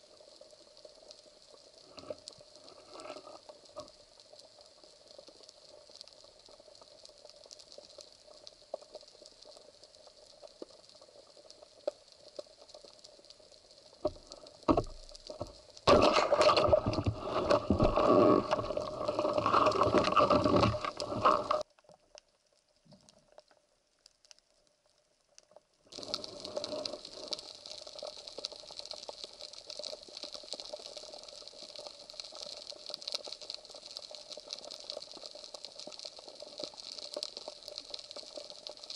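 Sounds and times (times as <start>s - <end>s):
faint underwater crackling hiss: 0.0s - 38.9s
rush of water: 15.9s - 21.6s.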